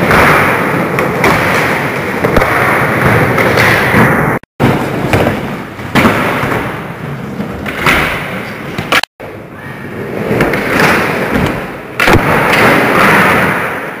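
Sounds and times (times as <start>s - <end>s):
skateboard thuds: 0.0s - 9.0s.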